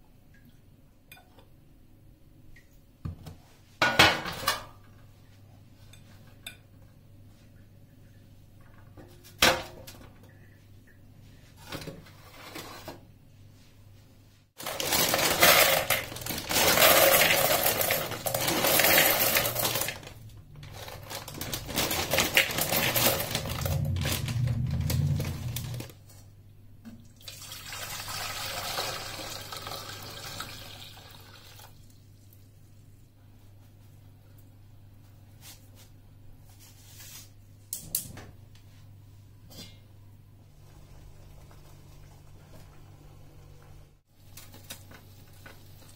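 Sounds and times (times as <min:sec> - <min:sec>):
dry pasta pouring into plastic bowl: 0:14.6 - 0:25.9
water pouring into metal pot: 0:27.2 - 0:31.8.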